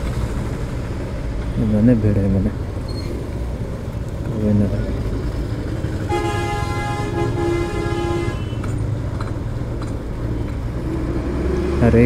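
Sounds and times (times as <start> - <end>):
motorcycle engine rumble: 0.0 - 12.0
street traffic: 0.0 - 12.0
vehicle horn: 6.1 - 8.7.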